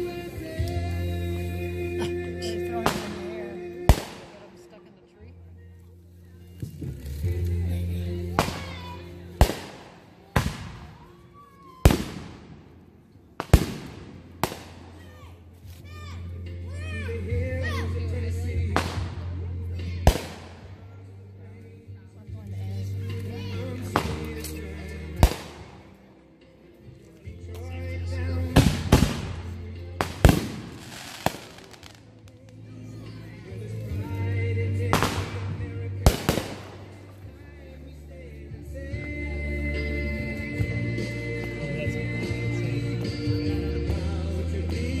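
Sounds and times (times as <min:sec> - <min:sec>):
music: 0:00.0 - 0:45.0
fireworks bangs with echo: 0:02.8 - 0:04.5, 0:09.4 - 0:11.0, 0:11.9 - 0:12.8, 0:13.4 - 0:15.0, 0:18.8 - 0:19.2, 0:20.1 - 0:20.7, 0:25.2 - 0:25.8, 0:28.5 - 0:32.5, 0:34.9 - 0:37.0.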